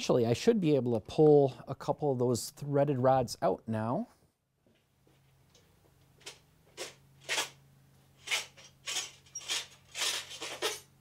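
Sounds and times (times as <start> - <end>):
threaded rod scraping: 8.2 - 10.9.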